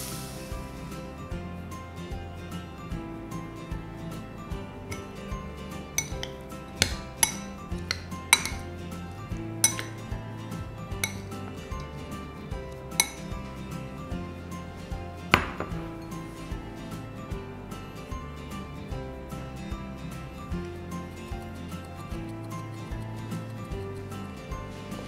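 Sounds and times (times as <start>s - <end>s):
metal spoon clinking on glass bowl: 4.9s - 9.0s, 9.6s - 10.2s, 10.9s - 12.0s, 12.8s - 13.4s
glass bowl knocking on counter: 15.4s - 16.0s.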